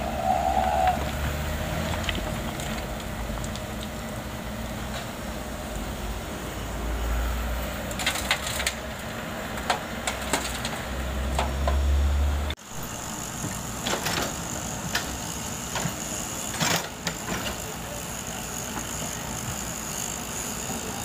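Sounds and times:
high-pitched whine: 0.0 - 1.6
excavator diesel engine rumbling: 0.0 - 21.0.

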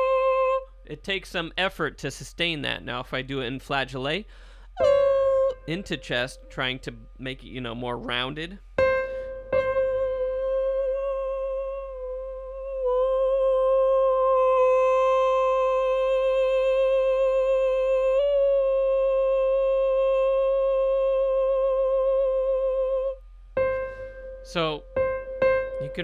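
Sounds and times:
man singing a high note: 0.0 - 1.6, 4.8 - 8.6, 10.0 - 23.2, 24.4 - 24.8, 25.8 - 26.0.

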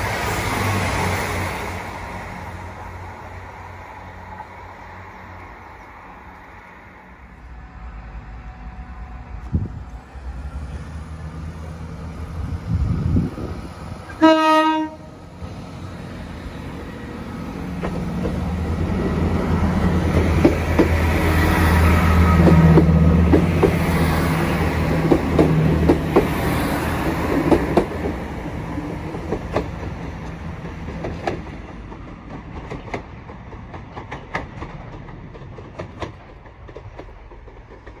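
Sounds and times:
train horn: 14.1 - 15.2
wheels clicking over rail joints: 29.0 - 38.0.

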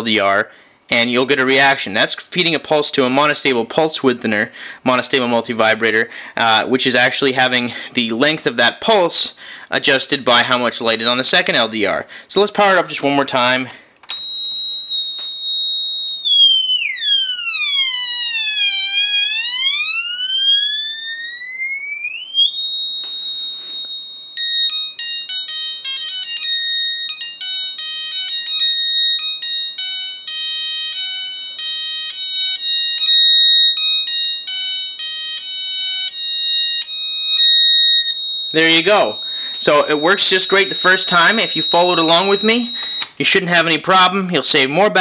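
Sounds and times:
choppy electronic beeps: 38.0 - 43.1.

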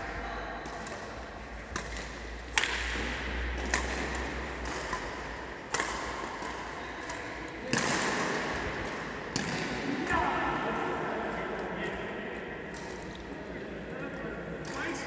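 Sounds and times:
rackets hitting shuttlecock: 0.6 - 10.1.

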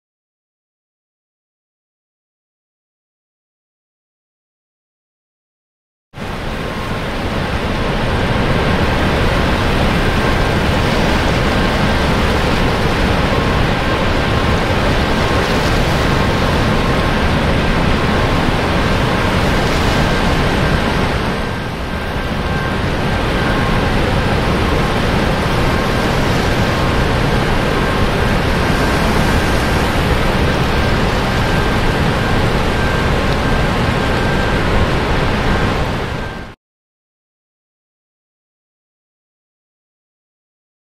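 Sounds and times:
rushing water from dam spillway: 6.2 - 36.6.

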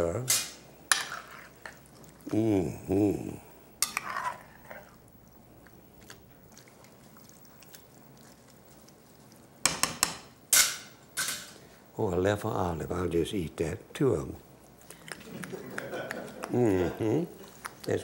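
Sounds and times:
metal spoon stirring a pot: 0.9 - 1.9, 3.8 - 5.0
man making voiced sounds: 2.2 - 3.5, 16.4 - 18.0.

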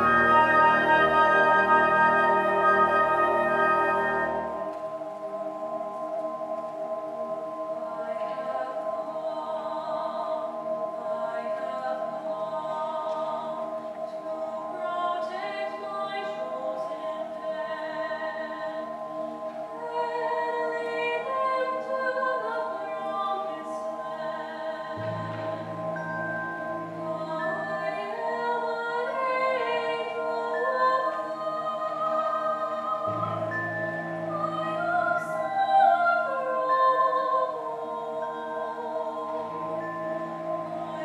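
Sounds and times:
concert band playing: 25.0 - 27.9
low bass note: 25.0 - 28.1, 33.1 - 35.5, 39.2 - 41.0.

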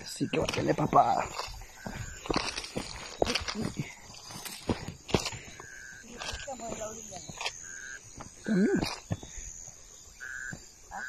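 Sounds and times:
footsteps through grass: 0.4 - 10.6.

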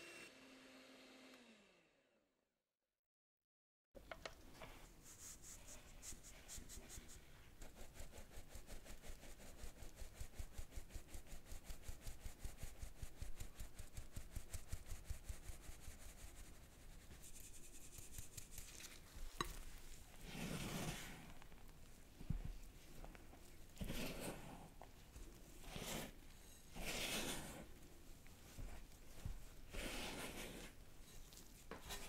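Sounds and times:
spatula scraping a bowl: 17.2 - 21.4, 23.7 - 27.8, 29.6 - 32.0.

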